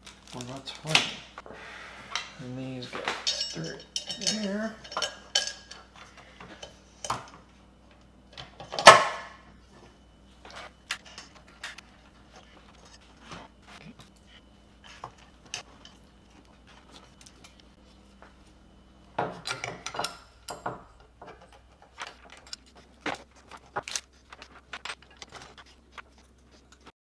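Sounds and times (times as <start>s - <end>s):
small metal parts clinking: 3.0s - 5.9s.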